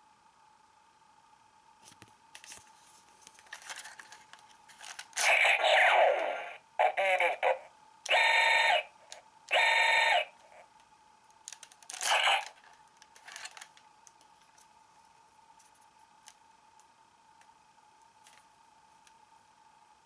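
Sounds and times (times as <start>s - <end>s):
electronic toy tone: 8.1s - 8.9s, 9.5s - 10.4s.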